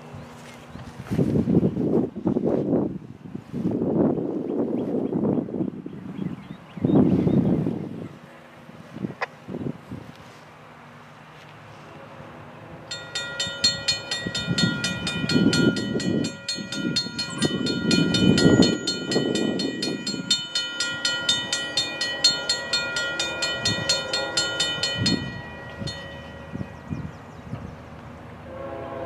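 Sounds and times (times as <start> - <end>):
crossing warning bell ringing: 12.8 - 28.0.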